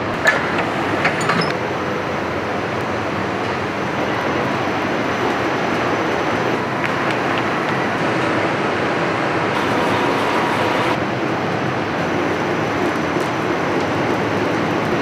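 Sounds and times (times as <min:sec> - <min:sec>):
faint machine whine: 0:09.6 - 0:11.0
paper winding machine running: 0:09.6 - 0:11.0.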